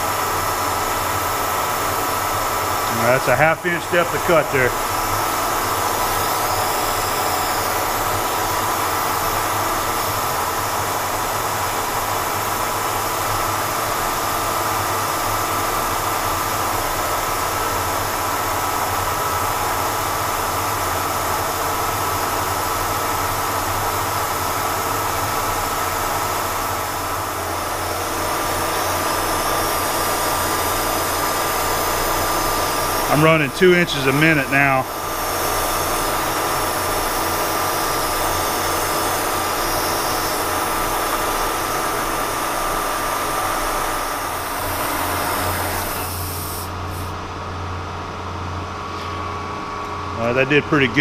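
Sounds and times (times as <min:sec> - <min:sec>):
mist coolant sprayer hiss: 0:00.0 - 0:13.8, 0:23.5 - 0:47.1
milling machine whine: 0:00.0 - 0:51.0.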